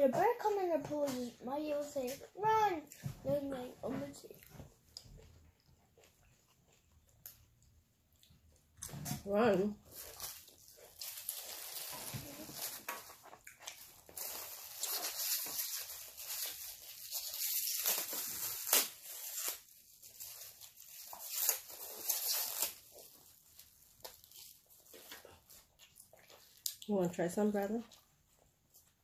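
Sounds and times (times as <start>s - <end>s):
plastic wrapper crinkling and tearing: 9.8s - 26.8s.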